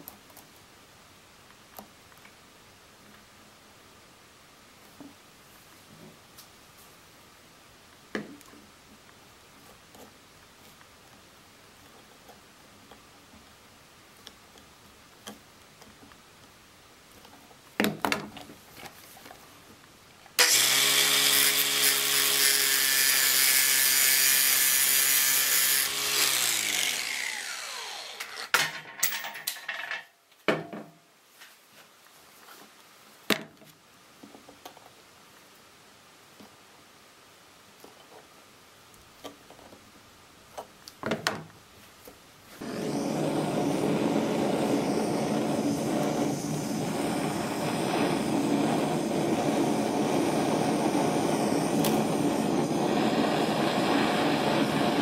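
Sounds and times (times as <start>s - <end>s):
angle grinder cutting wire: 20.4s - 28.7s, 51.0s - 55.0s.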